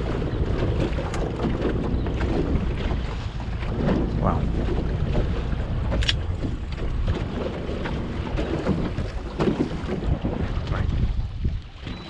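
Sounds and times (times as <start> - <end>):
water slapping a boat hull: 0.0 - 12.0
wind buffeting the microphone: 0.0 - 12.0.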